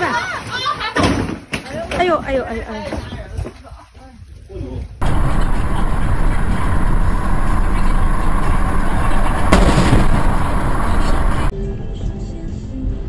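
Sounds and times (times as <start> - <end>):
sharp bang: 5.0 - 11.5
vehicle rumble: 5.0 - 11.5.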